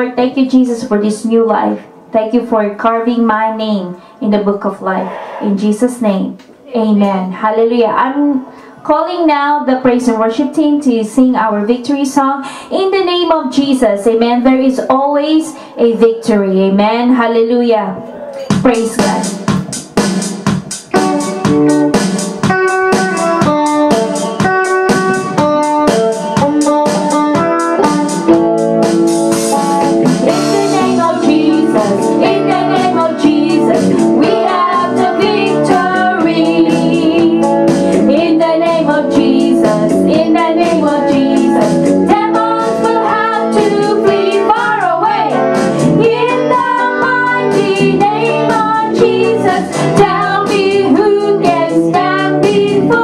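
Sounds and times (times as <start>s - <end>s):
instrumental accompaniment with beat: 18.3s - 53.0s
women and girl singing: 30.3s - 37.4s, 38.0s - 45.4s, 46.0s - 53.0s.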